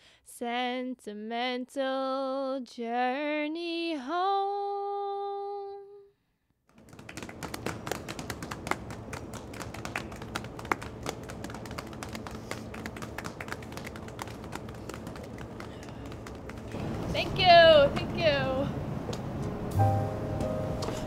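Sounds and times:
audience applause: 6.8 - 17.6.

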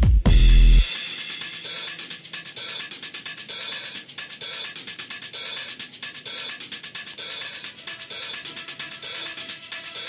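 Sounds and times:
electronic dance music: 0.0 - 10.0
deep bass note: 0.3 - 0.9.

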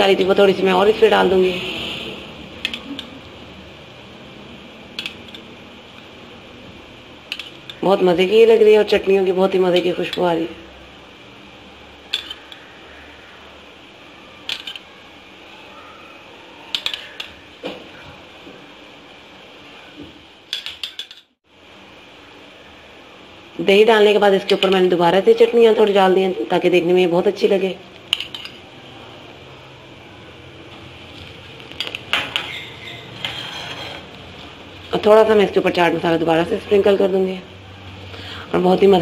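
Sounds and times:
spoon clinking against dishes: 12.1 - 12.6, 16.7 - 17.4, 20.5 - 21.3, 28.1 - 28.6.

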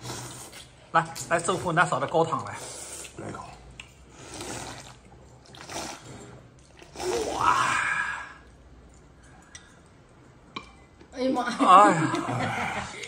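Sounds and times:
person slurping noodles: 0.0 - 0.8, 2.4 - 8.6.

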